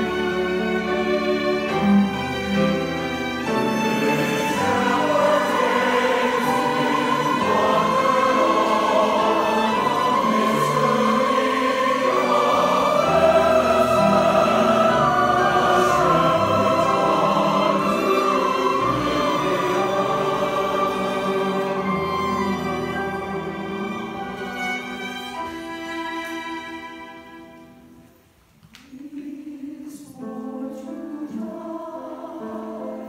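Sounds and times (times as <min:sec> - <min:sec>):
mixed choir singing: 0:00.0 - 0:27.1, 0:28.9 - 0:33.0
violin: 0:00.0 - 0:28.2.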